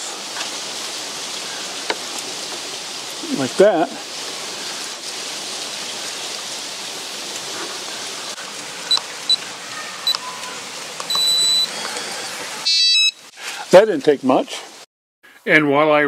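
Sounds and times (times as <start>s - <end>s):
steady hiss: 0.0s - 15.8s
keypad beeping: 11.1s - 11.7s.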